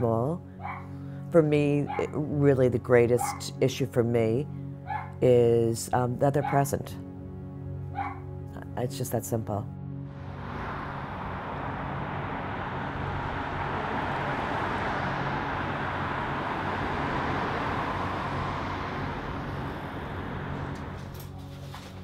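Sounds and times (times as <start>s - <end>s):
cars passing on road: 0.0s - 2.3s, 3.2s - 3.4s, 4.8s - 5.2s, 7.9s - 8.4s, 9.9s - 22.0s.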